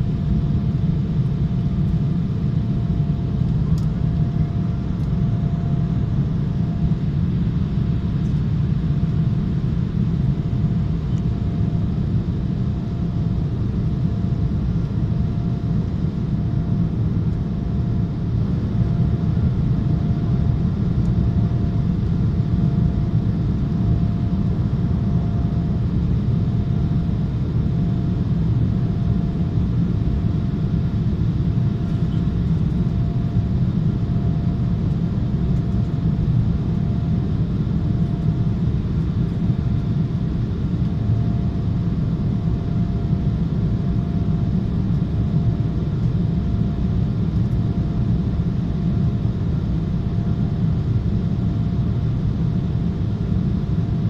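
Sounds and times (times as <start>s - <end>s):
jet engine and airflow rumble: 0.0s - 54.0s
faint thin whine: 30.9s - 48.8s.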